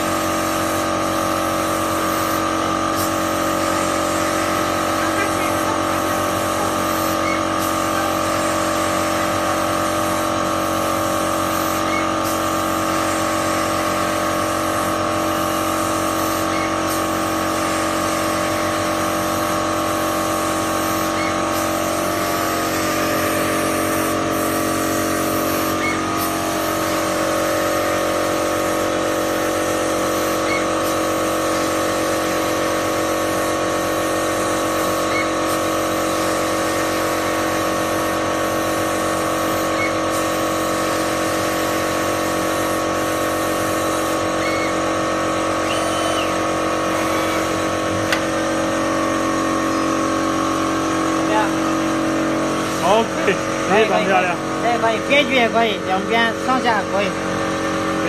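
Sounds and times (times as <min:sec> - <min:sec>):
sewing machine mechanical drone: 0:44.2 - 0:51.5.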